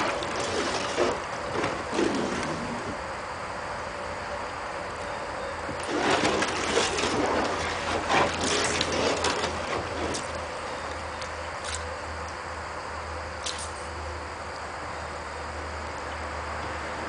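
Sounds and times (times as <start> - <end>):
water sloshing and splashing: 0.0 - 3.1, 5.6 - 11.9.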